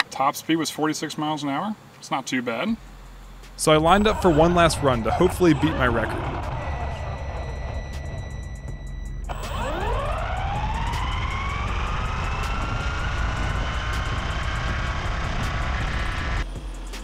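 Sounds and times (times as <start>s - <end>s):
low road rumble: 2.8s - 16.8s
electric rc car motor whining: 5.2s - 16.4s.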